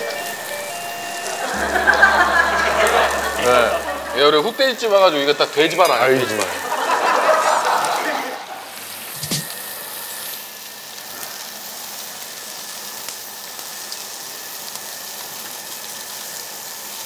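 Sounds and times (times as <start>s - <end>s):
pork sizzling on a grill: 0.0s - 4.1s, 8.6s - 17.0s.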